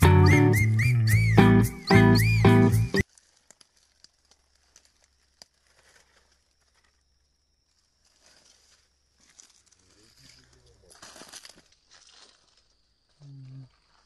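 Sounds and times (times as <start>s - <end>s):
footsteps in dry leaves: 3.0s - 7.0s, 7.7s - 13.1s, 13.7s - 14.0s.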